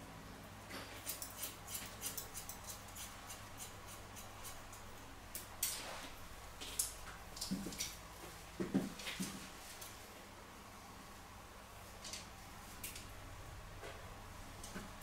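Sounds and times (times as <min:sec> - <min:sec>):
scissors snipping hair: 0:01.0 - 0:04.8.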